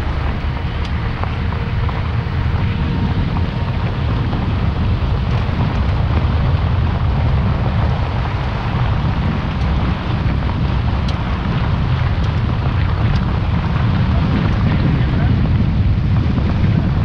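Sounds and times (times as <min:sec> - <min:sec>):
train coaches rolling past: 0:00.0 - 0:13.2
steady low rumble: 0:00.0 - 0:17.0
wind buffeting microphone: 0:00.0 - 0:17.0.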